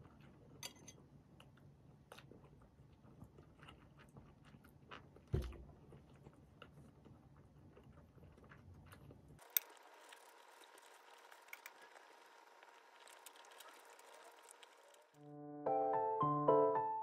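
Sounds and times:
piano music: 0:15.2 - 0:17.0.

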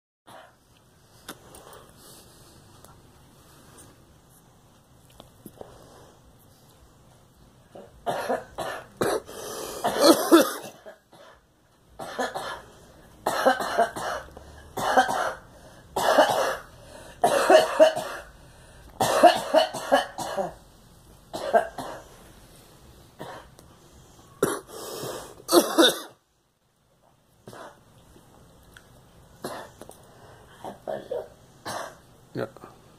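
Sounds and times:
woman coughing: 0:07.8 - 0:11.4, 0:12.0 - 0:12.6, 0:13.2 - 0:15.4, 0:16.0 - 0:18.3, 0:19.0 - 0:20.6, 0:21.4 - 0:22.0, 0:24.4 - 0:24.7, 0:25.5 - 0:26.2, 0:30.6 - 0:32.0.

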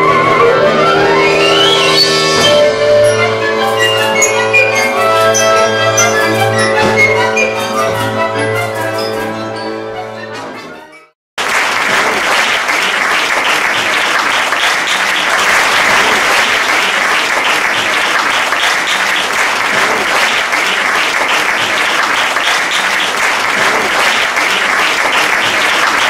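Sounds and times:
orchestral chord: 0:00.0 - 0:10.6
audience applauding: 0:11.4 - 0:26.0.

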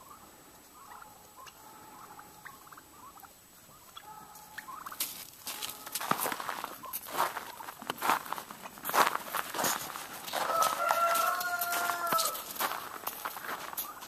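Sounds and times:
distant poultry calls: 0:00.0 - 0:14.0
crunching and rustling: 0:04.3 - 0:14.0.

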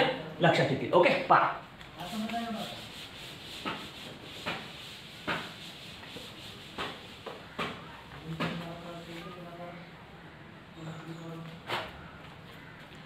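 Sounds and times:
blackboard eraser rubbing: 0:02.0 - 0:07.8.

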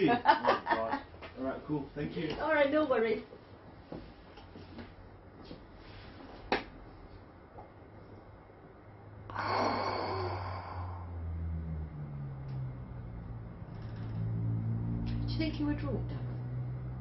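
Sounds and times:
low steady hum: 0:00.0 - 0:17.0
person sighing: 0:09.3 - 0:11.2.

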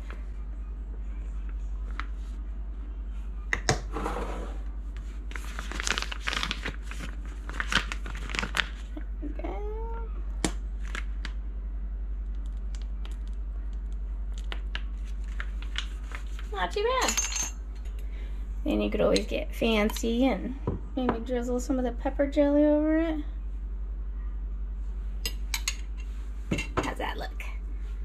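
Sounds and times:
steady low hum: 0:00.0 - 0:28.0
piping bag rustling and crinkling: 0:04.9 - 0:09.2, 0:12.2 - 0:16.8.

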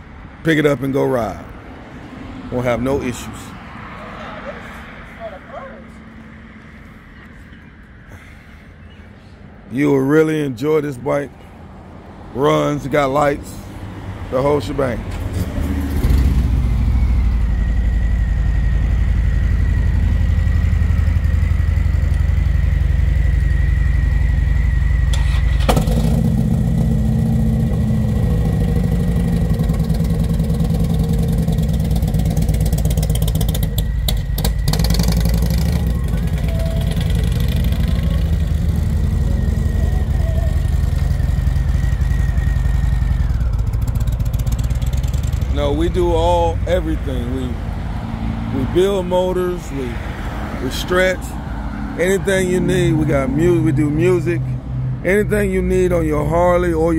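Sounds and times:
motorcycle engine running loud: 0:15.9 - 0:47.5.

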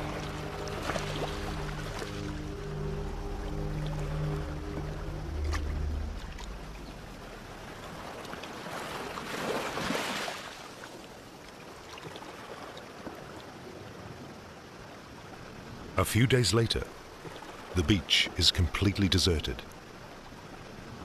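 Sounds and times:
waves washing against shore: 0:00.0 - 0:11.4.

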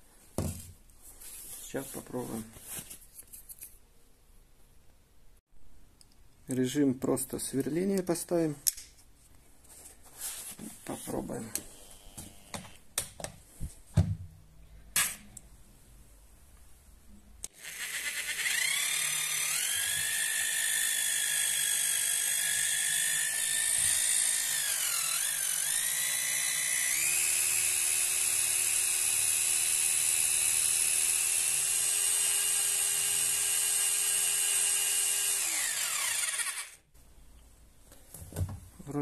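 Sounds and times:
drill whining into cement: 0:17.5 - 0:36.8.

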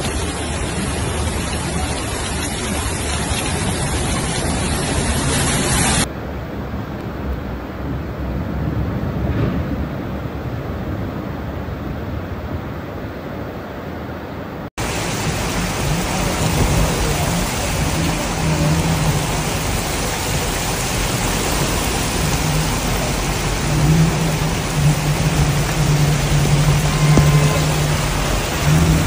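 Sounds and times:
rushing floodwater hiss: 0:00.0 - 0:06.1, 0:14.8 - 0:29.0
water running over street: 0:00.0 - 0:06.1, 0:14.8 - 0:29.0
heavy rain: 0:00.0 - 0:13.8, 0:14.5 - 0:29.0.

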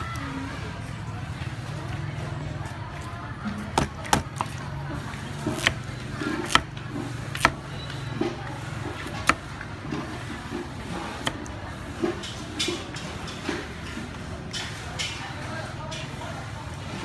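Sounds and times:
cleaver chopping on wooden block: 0:05.5 - 0:06.7, 0:07.3 - 0:07.6, 0:09.0 - 0:09.4.

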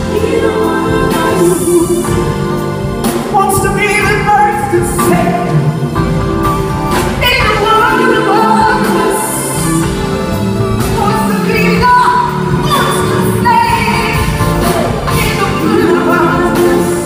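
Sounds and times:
backing vocalists singing: 0:00.0 - 0:02.7, 0:07.2 - 0:10.3, 0:11.0 - 0:17.0
woman singing lead: 0:00.0 - 0:06.1, 0:06.9 - 0:17.0
live band playing: 0:00.0 - 0:17.0.

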